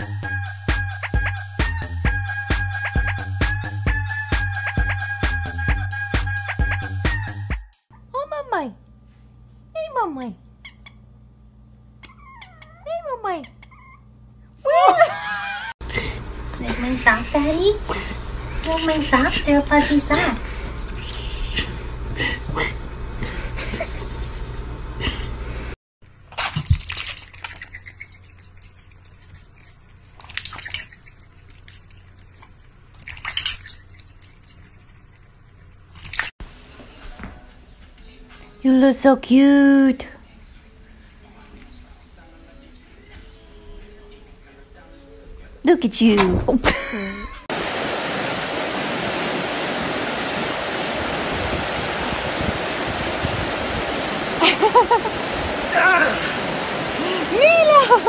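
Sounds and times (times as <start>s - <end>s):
low hum with clicks: 7.9s - 9.2s, 10.1s - 13.8s, 15.8s - 29.2s
water splashes: 26.2s - 36.3s, 47.5s - 58.0s
cat lapping water from metal bowl: 26.3s - 36.3s
creek rapids rushing: 47.5s - 58.0s.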